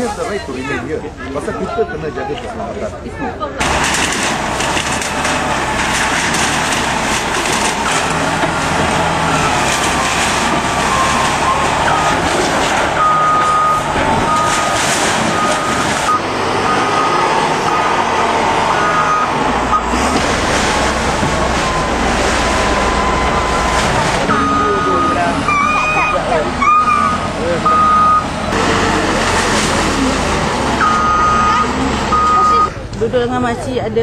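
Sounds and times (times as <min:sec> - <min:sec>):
diesel engine under load: 0:03.5 - 0:34.0
high beeping tone: 0:18.7 - 0:20.0, 0:22.8 - 0:28.3, 0:30.8 - 0:32.8.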